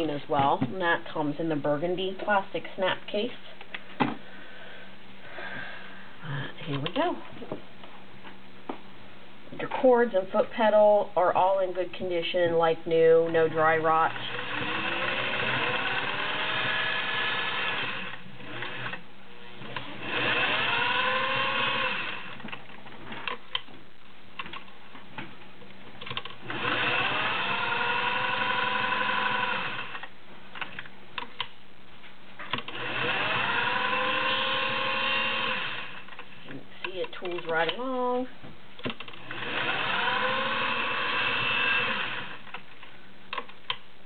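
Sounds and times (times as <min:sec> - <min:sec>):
sewing machine motor whine: 0:13.9 - 0:19.0, 0:19.7 - 0:22.4, 0:26.4 - 0:30.0, 0:32.7 - 0:36.0, 0:39.2 - 0:42.5.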